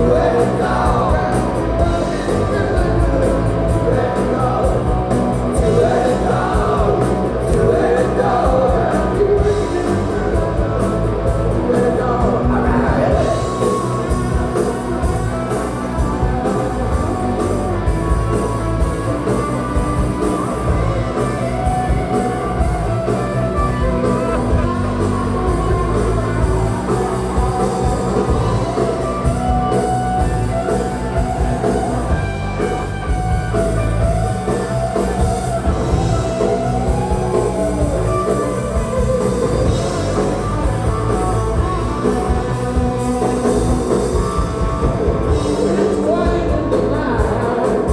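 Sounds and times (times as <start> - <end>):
person singing: 0.0 - 14.3
live rock band playing: 0.0 - 47.9.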